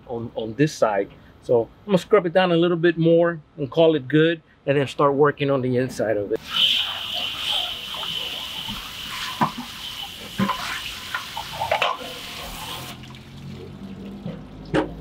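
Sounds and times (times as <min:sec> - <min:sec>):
hose spraying water onto metal: 0:06.4 - 0:14.2.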